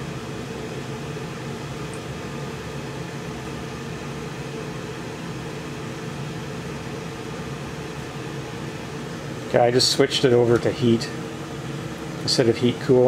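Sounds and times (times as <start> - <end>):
hvac mechanical hum: 0.0 - 13.0.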